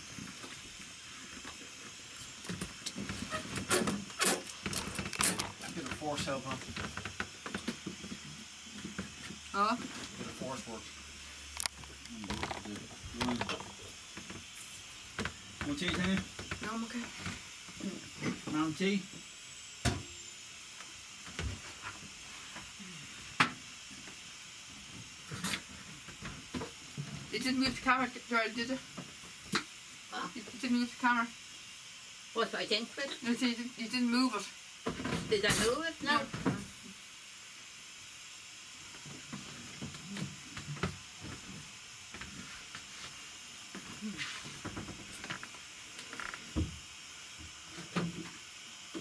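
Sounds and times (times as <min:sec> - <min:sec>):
steady hiss: 0:00.0 - 0:49.0
objects being handled and set down: 0:11.6 - 0:14.5.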